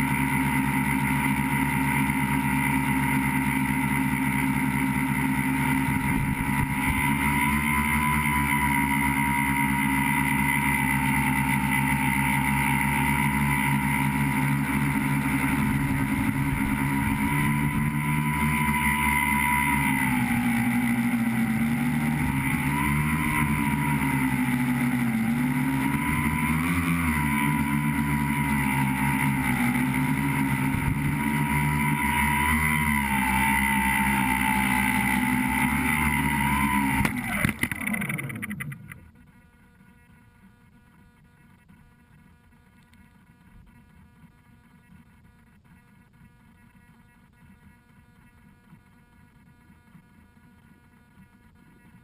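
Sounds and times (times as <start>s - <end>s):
electric motors and propellers whining: 0.0s - 39.2s.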